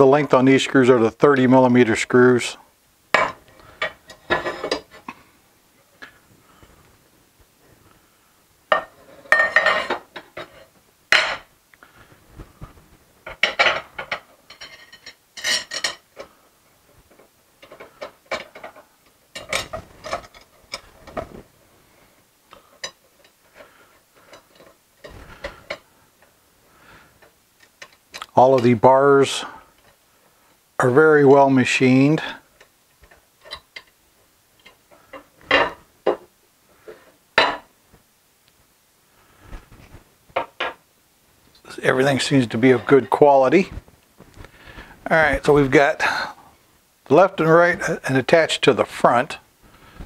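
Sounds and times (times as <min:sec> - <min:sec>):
metal parts clinking and rattling: 0:13.3 - 0:16.3, 0:17.6 - 0:21.3.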